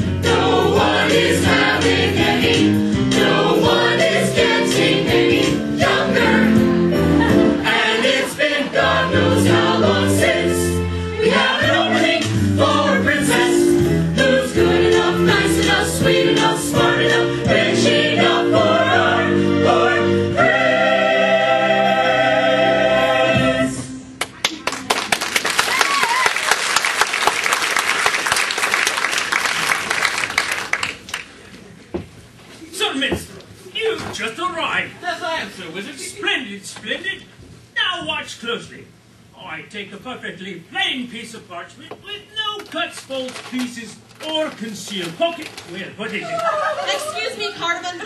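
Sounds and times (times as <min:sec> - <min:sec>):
chorus singing a show tune: 0:00.0 - 0:24.0
instrumental accompaniment: 0:00.0 - 0:24.2
audience applauding: 0:24.2 - 0:31.4.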